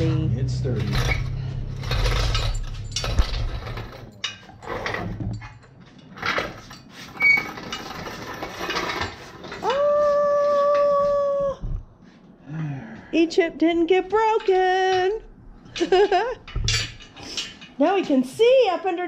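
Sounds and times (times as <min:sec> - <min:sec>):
metal clanks: 0:00.0 - 0:09.6, 0:14.2 - 0:18.2.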